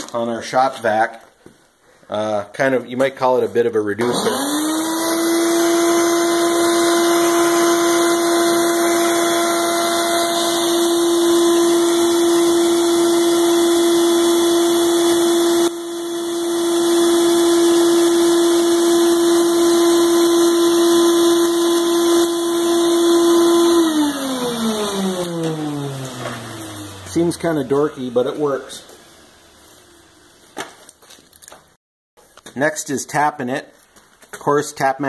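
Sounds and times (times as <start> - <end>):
shop vac whining: 2.1 - 31.8
vacuum motor spinning down: 4.0 - 30.2.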